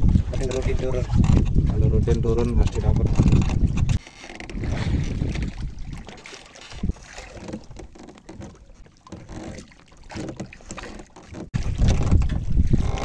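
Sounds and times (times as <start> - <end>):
wind buffeting microphone: 0.0 - 7.7, 11.5 - 13.0
water lapping against boat hull: 0.0 - 13.0.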